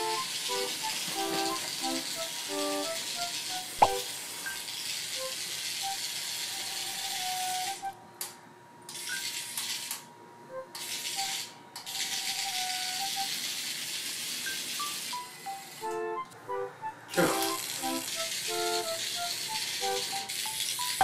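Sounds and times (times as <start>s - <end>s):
toy motor and plastic legs rattling: 4.5s - 7.9s, 8.9s - 10.1s, 10.8s - 15.9s, 17.1s - 21.0s.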